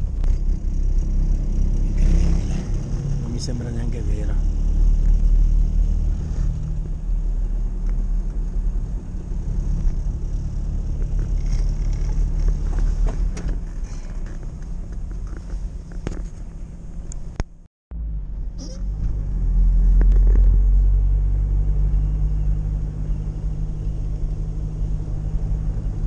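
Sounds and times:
van engine rumbling: 0:00.0 - 0:26.0.

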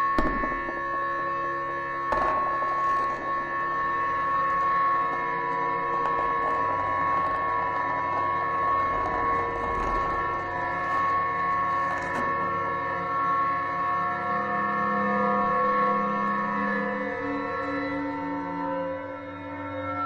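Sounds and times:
electronic ambient drone: 0:00.0 - 0:20.0.

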